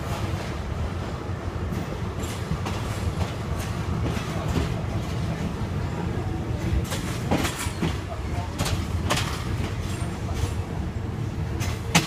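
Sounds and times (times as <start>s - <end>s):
train rumbling: 0.0s - 12.0s
wheels clacking over rail joints: 1.7s - 10.7s, 11.4s - 12.0s.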